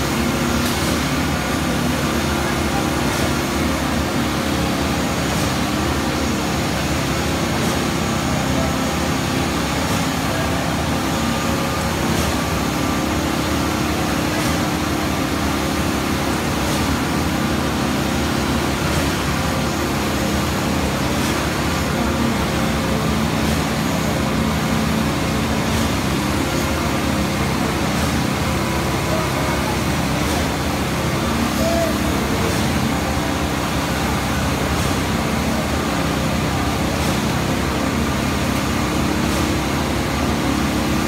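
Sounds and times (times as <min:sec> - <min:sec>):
concrete pump running: 0:00.0 - 0:41.0.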